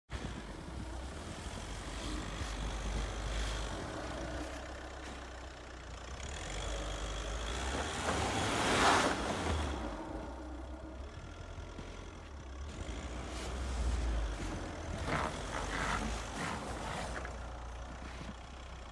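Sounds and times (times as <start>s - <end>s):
engine running under load: 0.1s - 18.9s
wheels spinning spraying snow: 0.2s - 18.6s.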